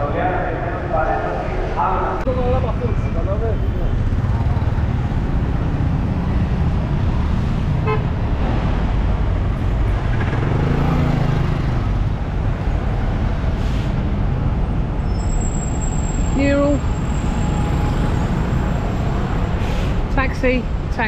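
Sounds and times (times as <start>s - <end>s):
street traffic: 0.0s - 21.0s
car horn toot: 7.8s - 8.1s.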